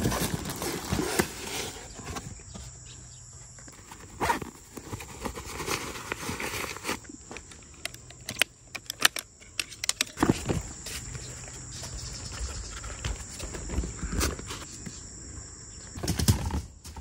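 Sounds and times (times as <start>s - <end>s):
rustling: 3.7s - 15.1s
sharp clicks: 7.8s - 10.2s.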